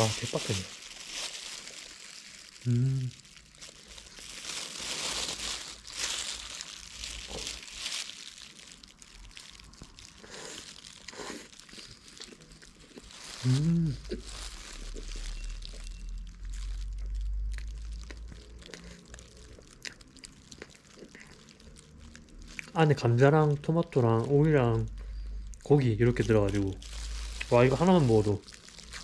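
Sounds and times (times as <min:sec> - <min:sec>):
plastic bag crinkling: 0:00.0 - 0:29.0
person humming: 0:02.6 - 0:03.2, 0:13.4 - 0:14.2
chewing: 0:06.2 - 0:22.8, 0:28.1 - 0:29.0.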